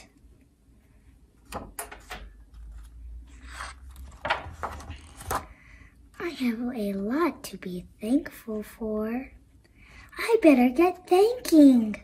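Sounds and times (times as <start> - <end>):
book pages turning: 2.5 - 5.5.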